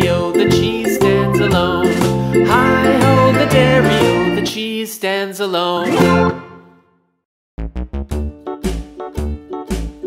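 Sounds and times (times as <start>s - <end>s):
instrumental background music: 0.0s - 4.6s, 7.6s - 10.0s.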